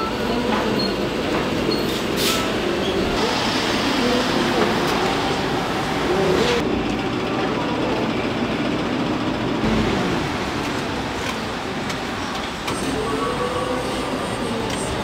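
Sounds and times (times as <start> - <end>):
road traffic: 0.0 - 15.0
cars passing: 2.6 - 6.8, 9.6 - 15.0
indistinct voices: 3.0 - 8.5, 9.6 - 15.0.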